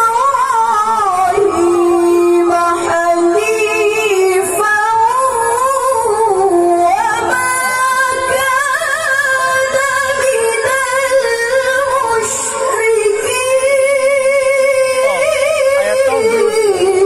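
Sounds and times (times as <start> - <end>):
woman reciting melodically: 0.0 - 17.0.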